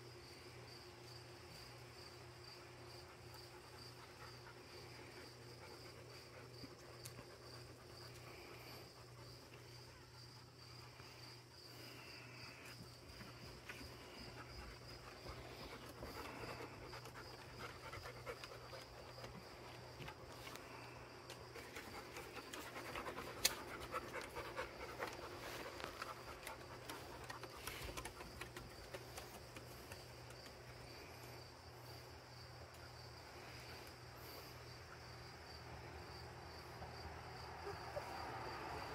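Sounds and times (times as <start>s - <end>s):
crickets chirping: 0.0s - 38.9s
dog panting: 3.0s - 32.0s.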